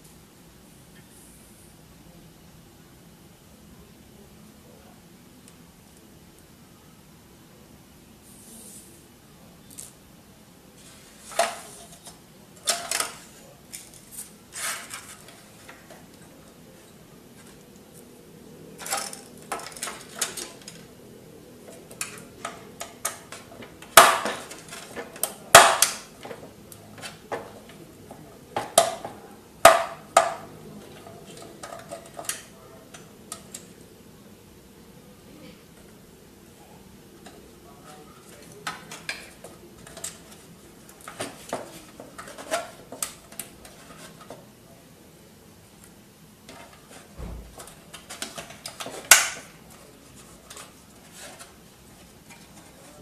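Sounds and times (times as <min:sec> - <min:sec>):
plastic parts clicking and rattling: 0:18.8 - 0:20.9.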